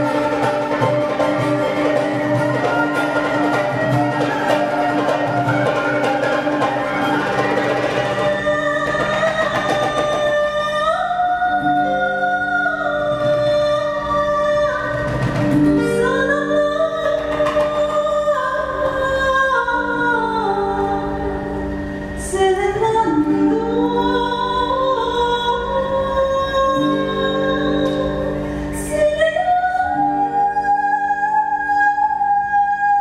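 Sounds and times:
plucked and bowed strings: 0.0 - 33.0.

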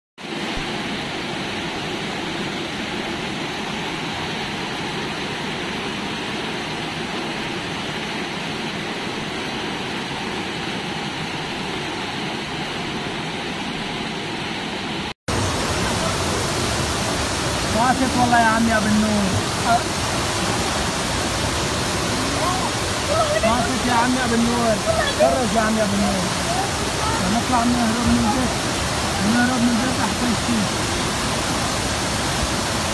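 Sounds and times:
floodwater rushing: 0.2 - 32.9.

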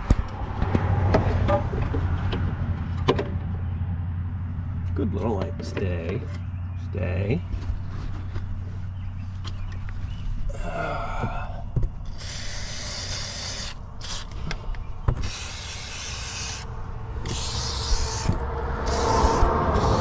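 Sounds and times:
aerosol can spraying: 18.9 - 20.0.

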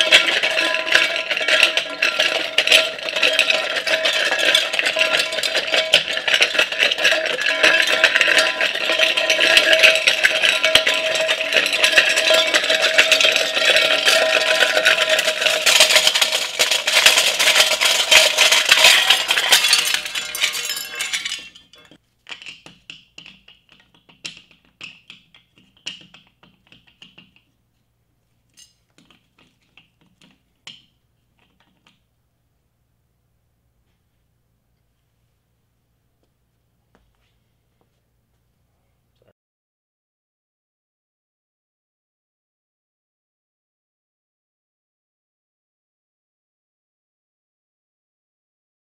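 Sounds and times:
loud rattling and clattering: 0.0 - 22.0.

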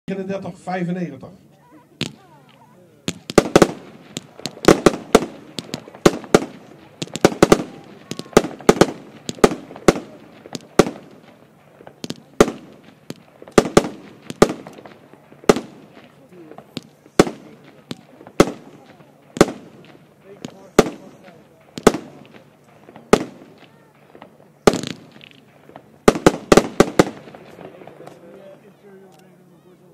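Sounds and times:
fireworks bangs with echo: 2.0 - 28.6.

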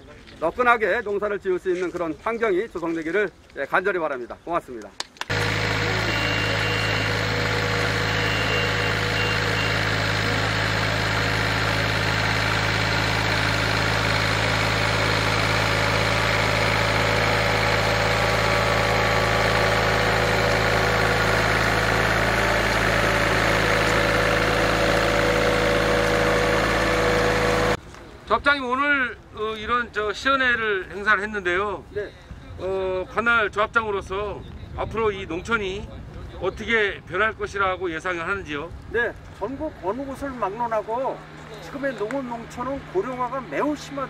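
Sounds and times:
rice transplanter engine droning: 5.3 - 27.8, 40.0 - 44.0.

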